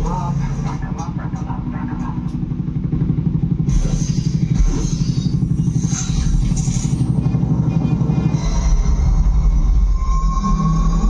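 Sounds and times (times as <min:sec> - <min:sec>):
action film soundtrack: 0:00.0 - 0:11.0
low pulsing rumble: 0:00.0 - 0:11.0
hiss and clatter: 0:03.6 - 0:07.5.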